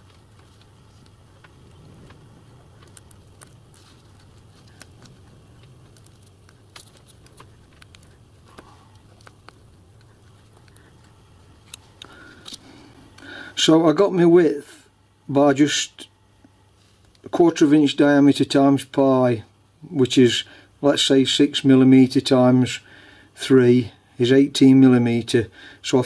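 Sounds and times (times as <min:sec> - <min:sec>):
wire mesh clicking and rustling: 0:00.0 - 0:12.7
low steady hum: 0:00.0 - 0:26.0.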